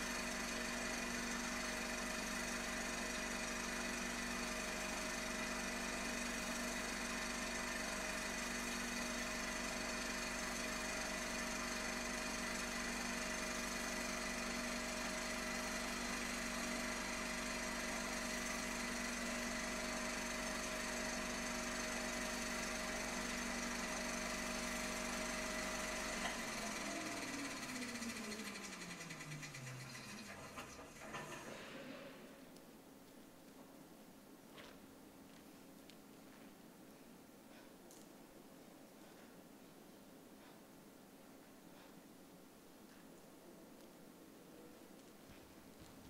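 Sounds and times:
film projector clattering: 0.0s - 31.8s
projector motor hum: 0.0s - 32.8s.

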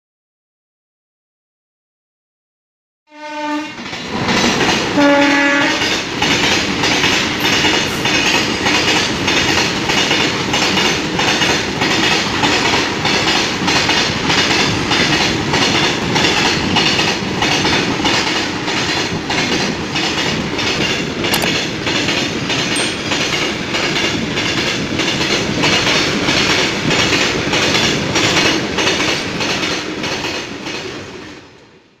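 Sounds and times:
locomotive horn: 3.1s - 3.8s, 4.9s - 5.9s
train running rumble: 3.7s - 31.4s
train wheels clickety-clack: 3.7s - 31.7s.

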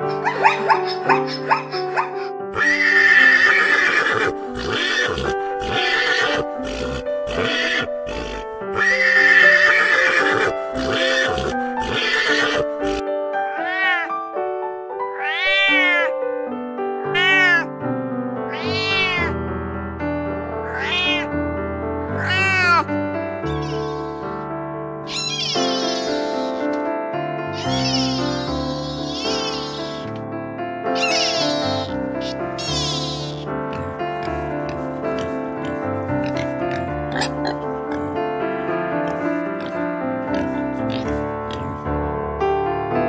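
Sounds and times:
zebra braying and barking: 0.0s - 13.0s, 25.1s - 26.8s, 27.5s - 30.1s, 31.0s - 38.2s
background music: 0.0s - 43.0s
cat meowing: 13.5s - 14.1s, 15.1s - 16.1s, 17.1s - 17.7s, 18.5s - 19.4s, 20.6s - 21.3s, 22.2s - 22.9s, 23.5s - 24.4s, 25.1s - 26.7s, 27.6s - 30.1s, 31.0s - 33.5s.

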